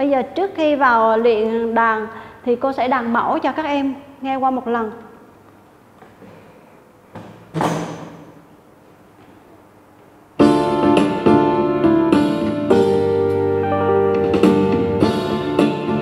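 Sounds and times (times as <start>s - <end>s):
electronic keyboard melody: 10.4s - 16.0s.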